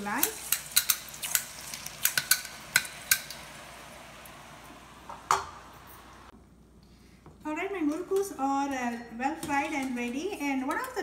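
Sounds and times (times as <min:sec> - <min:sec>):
oil crackling and popping: 0:00.0 - 0:03.6
dough sizzling in oil: 0:00.0 - 0:06.3.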